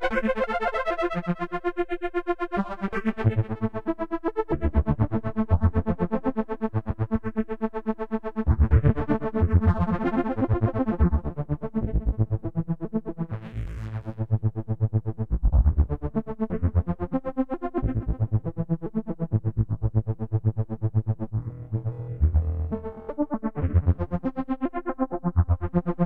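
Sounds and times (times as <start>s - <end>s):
pulsing synthesizer chords: 17.9s - 26.0s
deep synth bass: 20.8s - 24.1s.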